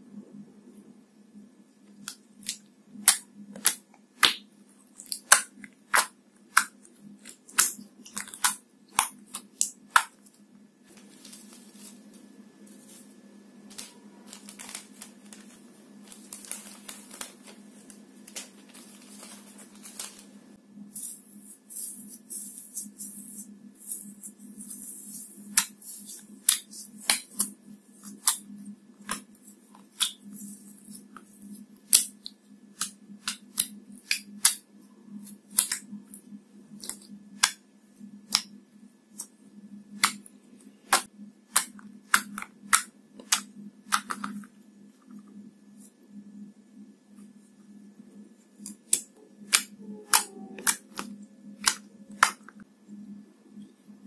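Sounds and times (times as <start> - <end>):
low steady hum: 0.0 - 54.0
slime clicking and popping: 2.0 - 10.2
foil rustling and crackling: 10.9 - 13.1, 13.7 - 20.5.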